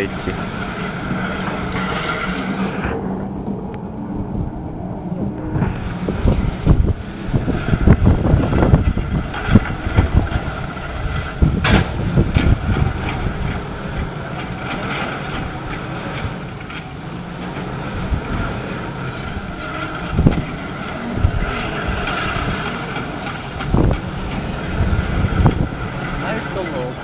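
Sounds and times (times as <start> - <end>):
low thumps: 0.0 - 14.8
distant machinery rumble: 0.0 - 27.0
wind buffeting microphone: 0.0 - 27.0.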